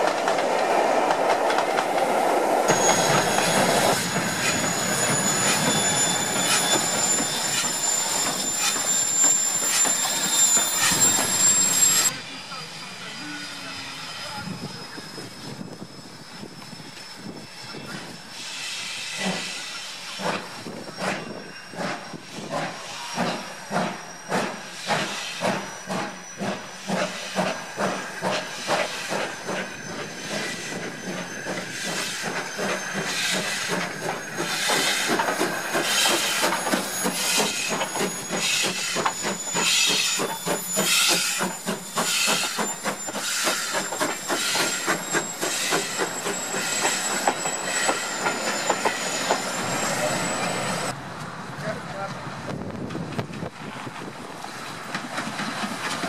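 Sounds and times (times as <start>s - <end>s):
hissing steam: 0.0s - 51.0s
steam locomotive chuffing: 0.0s - 51.0s, 51.9s - 56.0s.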